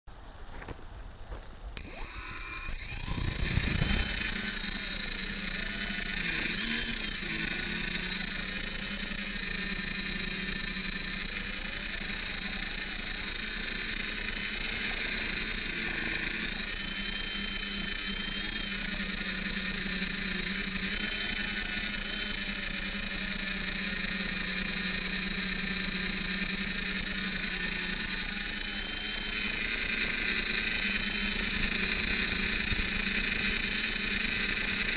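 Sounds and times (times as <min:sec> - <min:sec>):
drone motors whining: 0:01.8 - 0:34.9
low rumble: 0:03.0 - 0:04.4.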